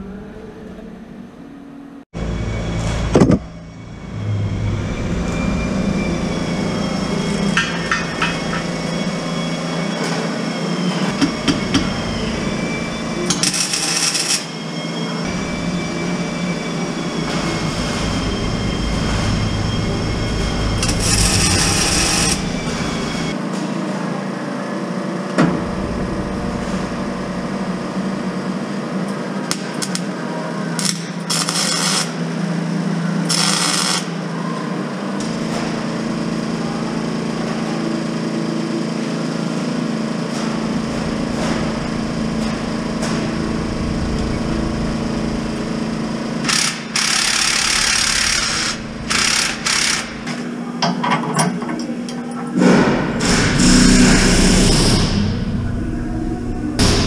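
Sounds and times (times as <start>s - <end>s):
steady low hum: 0.0s - 9.9s, 15.2s - 23.4s, 25.3s - 29.1s, 40.0s - 50.8s, 52.6s - 57.0s
sharp metal knocks: 7.5s - 8.8s.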